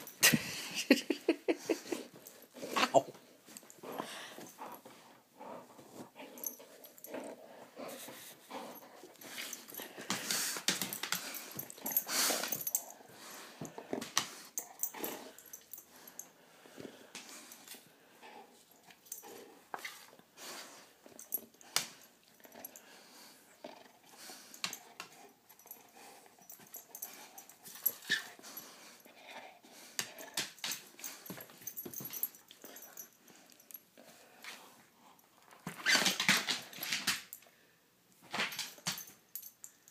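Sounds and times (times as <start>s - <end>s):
dog breathing: 3.7s - 35.2s.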